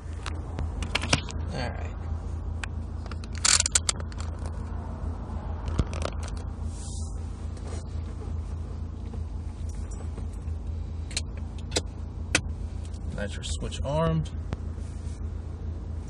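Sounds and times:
car engine idling: 0.0s - 16.0s
sharp clicks and scraping: 0.1s - 1.4s, 2.6s - 4.7s, 5.6s - 6.5s.

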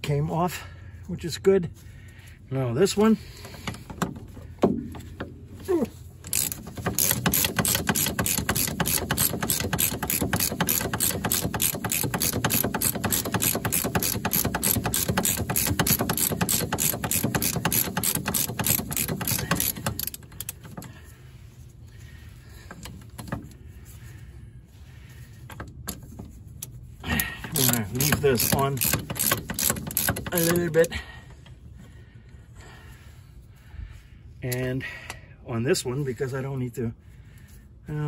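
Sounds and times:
ratchet wrench clicking: 6.2s - 20.9s, 26.6s - 31.0s.

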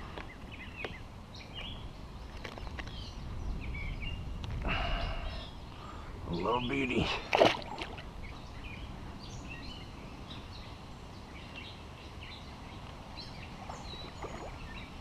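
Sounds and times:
birds chirping: 0.0s - 15.0s
steady outdoor hiss: 0.0s - 15.0s
fish splashing into water: 7.2s - 8.1s.

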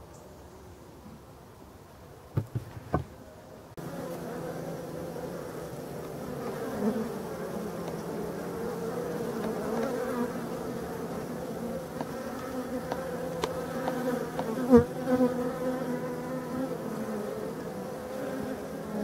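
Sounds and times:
bees buzzing: 3.7s - 19.0s
single bee flying past: 3.8s - 19.0s.

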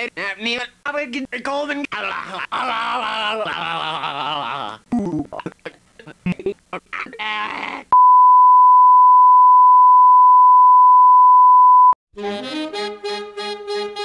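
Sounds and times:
steady test tone beep: 8.0s - 12.0s
music: 12.2s - 14.0s.

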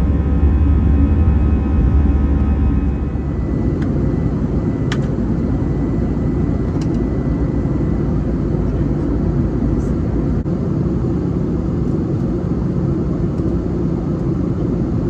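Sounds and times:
steady tones: 0.0s - 4.9s
aircraft cabin engine rumble: 0.0s - 15.0s.

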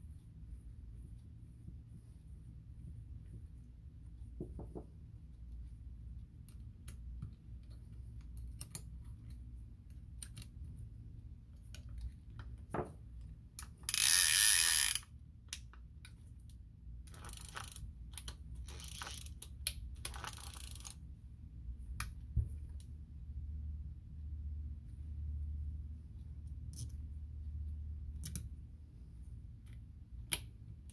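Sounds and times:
small metallic clicks and knocks: 6.4s - 10.6s
fishing reel ratcheting clicks: 13.6s - 15.1s, 17.1s - 21.0s.

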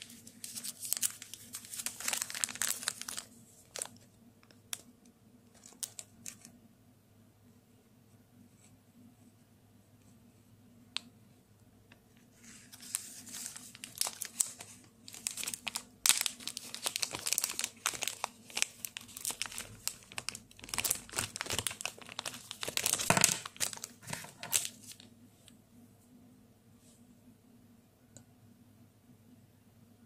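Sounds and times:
plastic bag crinkling: 0.0s - 4.9s, 5.5s - 6.5s, 12.4s - 25.1s.

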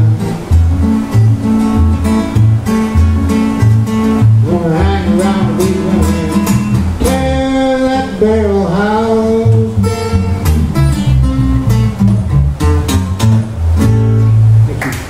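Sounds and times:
acoustic guitars strumming: 0.0s - 15.0s
man singing: 4.4s - 10.2s.

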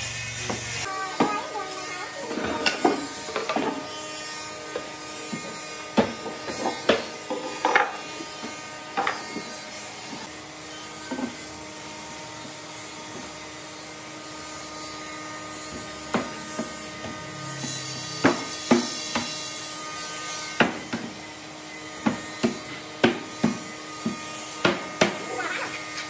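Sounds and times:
electric motor humming: 0.0s - 26.0s
wood and tools knocking: 2.3s - 3.9s, 4.8s - 9.5s, 15.7s - 17.2s.

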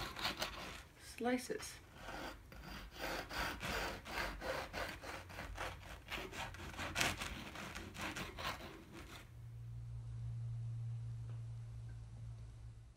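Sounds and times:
bread knife sawing crusty loaf: 0.0s - 0.8s, 2.0s - 9.3s.

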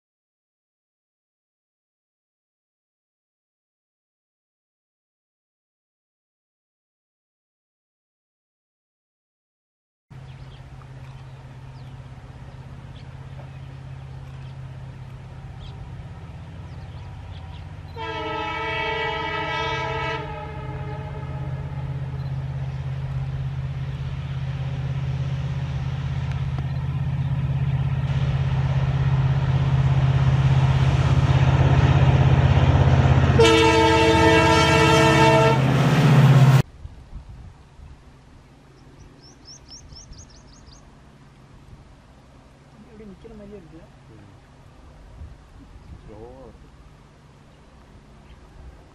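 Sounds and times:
diesel locomotive engine drone: 10.1s - 48.9s
train horn blasts: 17.9s - 22.2s, 33.2s - 36.6s.

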